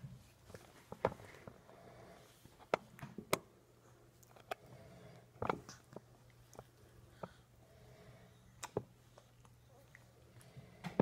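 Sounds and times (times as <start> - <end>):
baby chewing wet mouth sounds: 5.3 - 7.6, 8.5 - 10.5.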